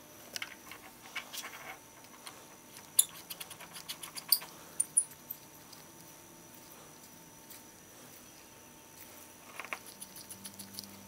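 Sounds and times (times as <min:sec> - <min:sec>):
small parts clicking: 0:09.5 - 0:11.0.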